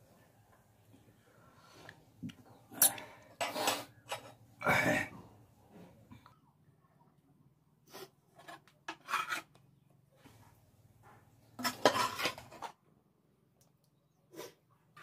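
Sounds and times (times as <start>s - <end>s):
scraping and clinking on plate: 2.9s - 4.4s, 8.4s - 9.5s, 11.6s - 12.8s.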